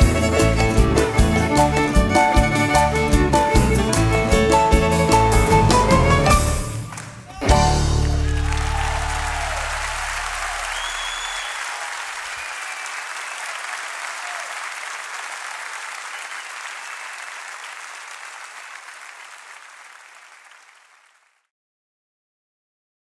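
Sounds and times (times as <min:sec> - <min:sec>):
audience applauding: 0:05.2 - 0:21.4.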